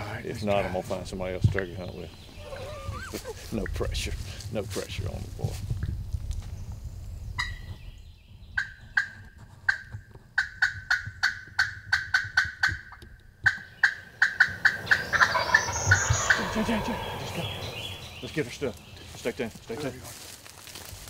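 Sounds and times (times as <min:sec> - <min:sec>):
turkey gobbling: 0:08.6 - 0:18.3.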